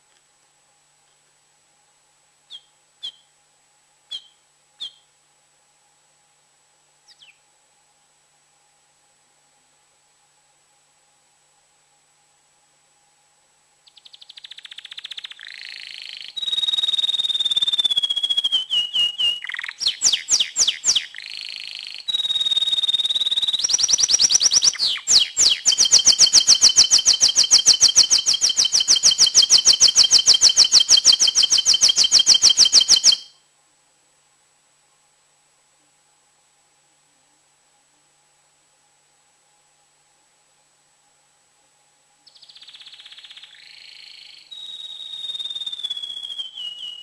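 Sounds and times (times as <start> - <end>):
canary singing trills: 2.5 - 3.3, 4.1 - 5.1, 7.1 - 7.4, 13.8 - 33.4, 42.3 - 47.0.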